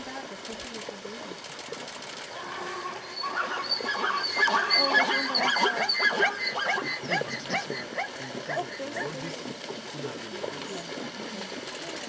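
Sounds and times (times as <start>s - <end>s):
zebras barking calls: 2.3s - 9.5s.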